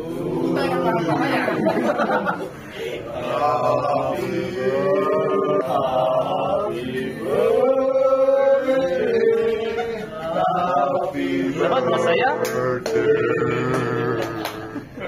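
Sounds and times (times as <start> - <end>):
people singing in unison: 0.0 - 15.0.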